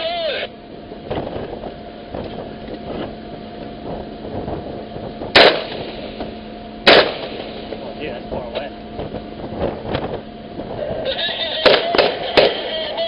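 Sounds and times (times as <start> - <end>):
steady hum: 0.0 - 13.0
gunshots: 5.4 - 5.8, 6.9 - 7.4, 11.6 - 12.7.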